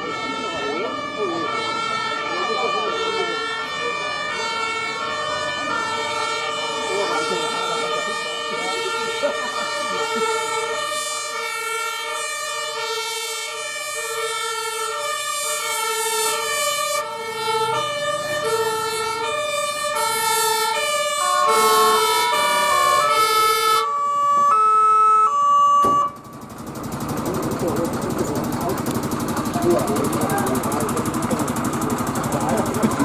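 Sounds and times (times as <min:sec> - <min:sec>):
second two-tone siren: 0:00.0 - 0:26.6
two-tone fire engine siren: 0:00.0 - 0:33.0.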